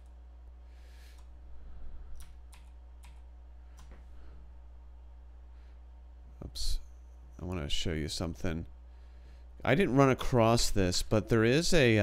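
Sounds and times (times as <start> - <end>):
low electrical hum: 0.0 - 12.0
keyboard and mouse clicks: 2.2 - 4.0.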